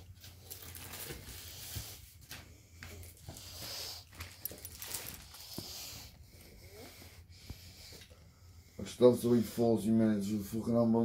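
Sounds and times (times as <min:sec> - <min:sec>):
rustling of paper and cloth: 0:00.0 - 0:06.1.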